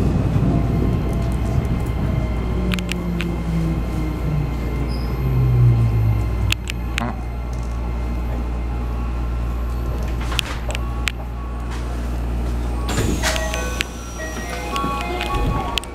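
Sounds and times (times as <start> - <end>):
train equipment humming: 0.0 - 15.9
sharp clicks: 2.7 - 3.3
train doors opening with air burst: 11.6 - 15.9
electronic chime tones: 12.9 - 15.9.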